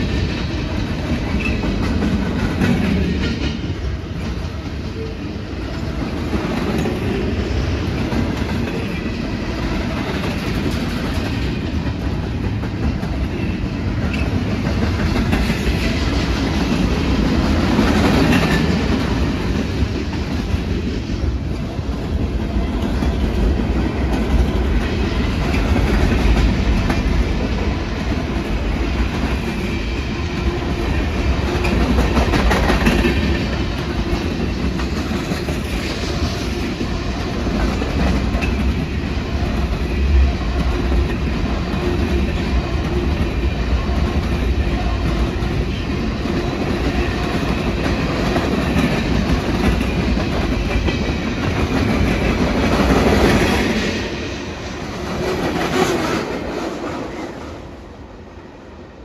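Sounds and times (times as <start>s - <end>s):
train wheels clattering on rails: 0.0s - 57.8s.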